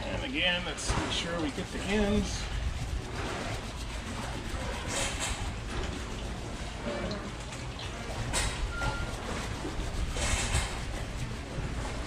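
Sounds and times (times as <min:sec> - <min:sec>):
steady low rumble: 0:00.0 - 0:04.9
brush scrubbing wet fender: 0:00.0 - 0:12.0.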